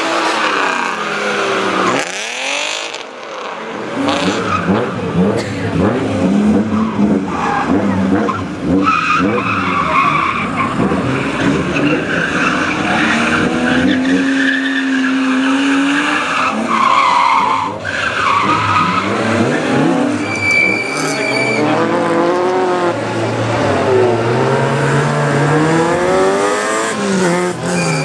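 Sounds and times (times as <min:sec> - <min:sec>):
car engine revving: 0:00.0 - 0:28.0
tyres squealing: 0:06.8 - 0:22.8, 0:27.6 - 0:28.0.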